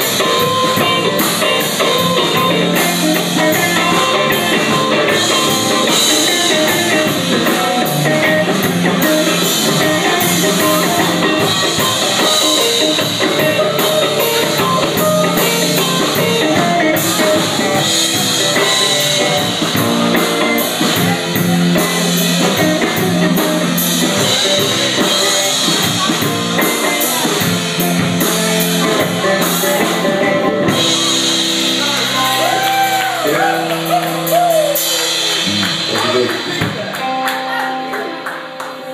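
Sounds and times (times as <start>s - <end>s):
rock band playing: 0.0s - 38.9s.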